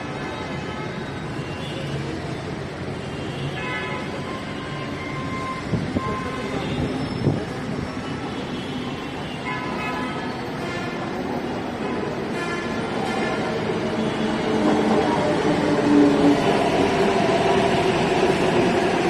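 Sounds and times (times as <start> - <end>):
electric train rumbling: 10.6 - 19.0.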